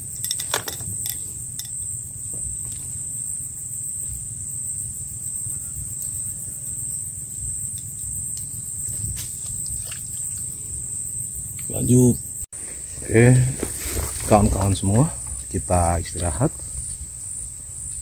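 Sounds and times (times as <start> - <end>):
high-pitched insect chorus: 0.0 - 18.0.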